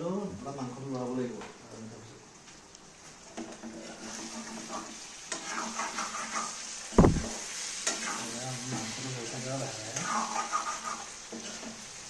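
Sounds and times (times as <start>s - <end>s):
curry sizzling: 0.0s - 12.0s
spatula scraping metal pan: 3.8s - 6.7s
loud low thump: 7.0s - 7.3s.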